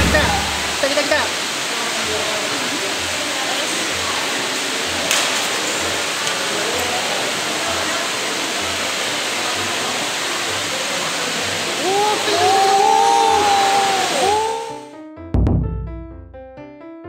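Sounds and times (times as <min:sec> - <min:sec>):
faint low throb: 0:15.4 - 0:16.2.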